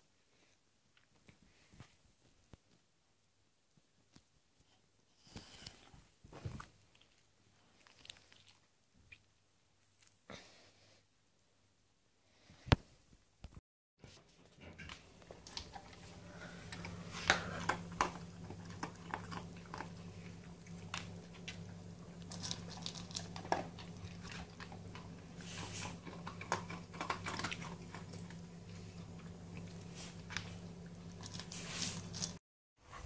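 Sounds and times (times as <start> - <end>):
faint low hum: 14.1 - 33.0
dog crunching kibble: 14.8 - 32.4.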